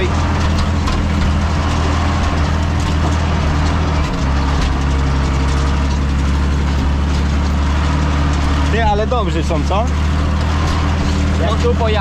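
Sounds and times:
tractor engine droning: 0:00.0 - 0:12.0.

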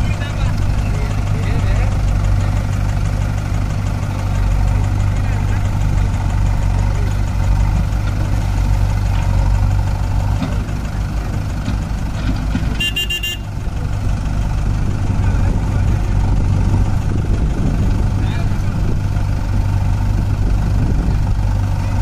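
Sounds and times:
backhoe loader engines running: 0:00.0 - 0:22.0
tractor diesel engine running: 0:00.0 - 0:22.0
vehicle horn toot: 0:12.8 - 0:13.5.

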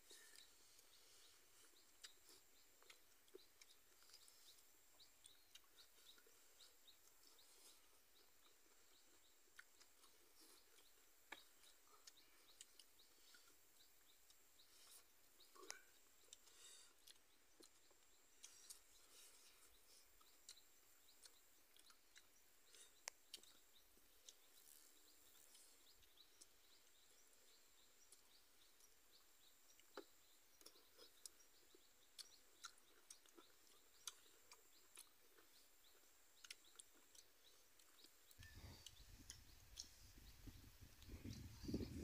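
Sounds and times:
chewing and mouth clicks: 0:00.1 - 0:42.0.

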